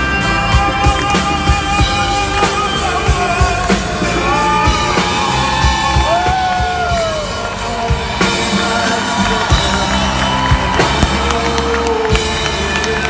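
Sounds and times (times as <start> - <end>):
backing vocals: 0.0 - 13.0
live band music: 0.0 - 13.0
man singing: 0.0 - 13.0.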